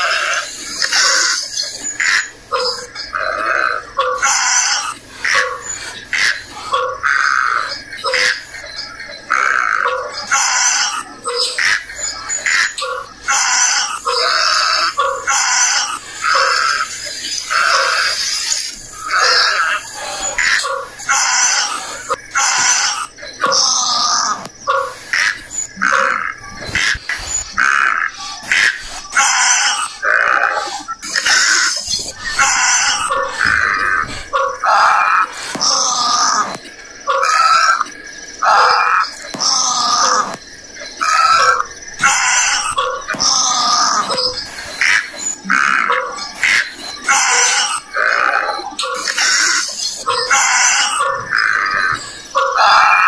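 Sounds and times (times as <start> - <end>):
harsh rasping animal calls: 0.0 - 53.0
short harsh animal calls: 17.5 - 37.8, 38.4 - 40.4.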